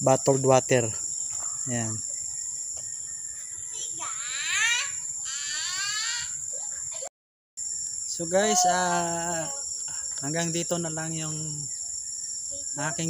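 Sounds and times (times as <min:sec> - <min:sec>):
insect chorus drone: 0:00.0 - 0:13.0
children calling out: 0:03.8 - 0:07.1, 0:08.3 - 0:09.7.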